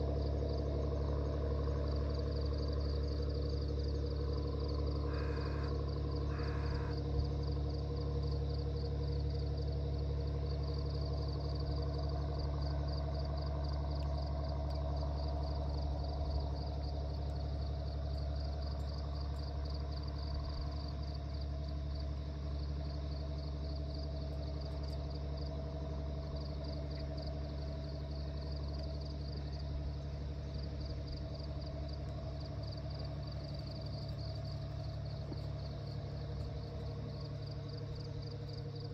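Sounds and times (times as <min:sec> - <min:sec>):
steady low hum with held tones: 0:00.0 - 0:38.9.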